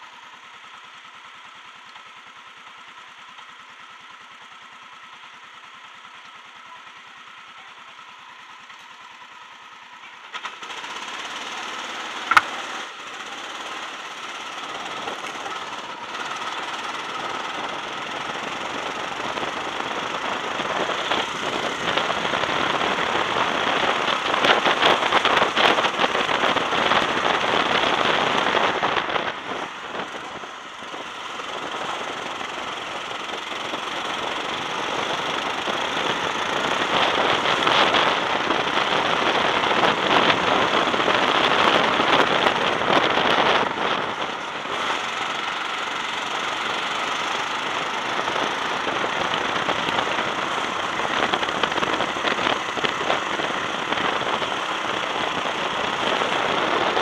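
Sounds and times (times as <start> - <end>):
go-kart engine running: 0.0 - 57.0
wind rushing over microphone: 18.5 - 57.0.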